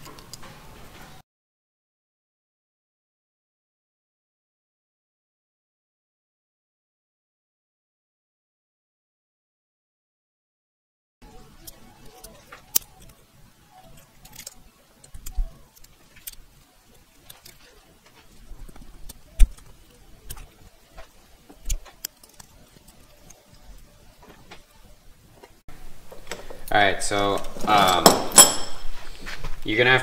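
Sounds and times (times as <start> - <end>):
plastic clicks and scrapes: 11.6 - 25.6.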